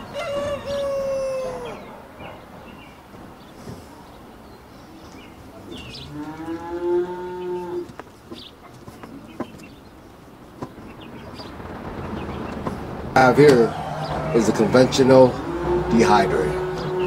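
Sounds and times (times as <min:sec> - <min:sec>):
drawn-out animal call: 0:05.6 - 0:09.6, 0:10.7 - 0:17.0.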